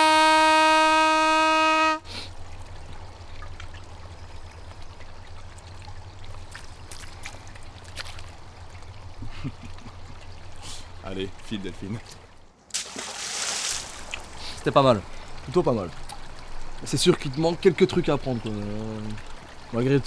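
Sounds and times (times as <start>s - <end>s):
hand call blown horn-like note: 0.0s - 2.1s
faint trickle of running water: 0.1s - 20.0s.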